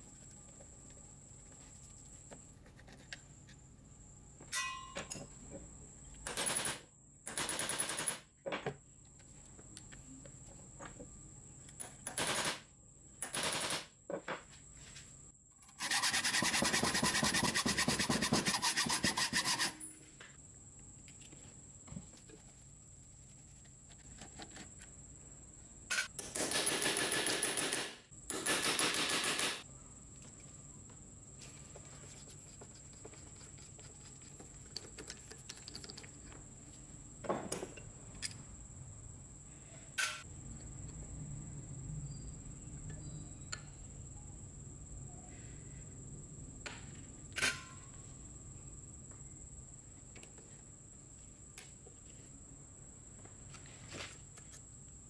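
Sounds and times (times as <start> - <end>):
metal scraping and rasping: 15.8 - 19.9.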